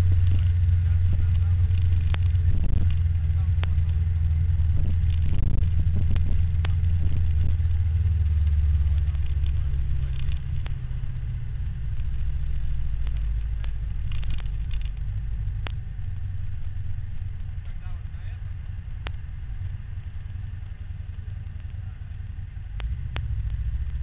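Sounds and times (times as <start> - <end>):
road and wind rumble: 0.0 - 24.0
sharp clicks: 1.2 - 4.0, 12.9 - 15.8, 22.8 - 23.6.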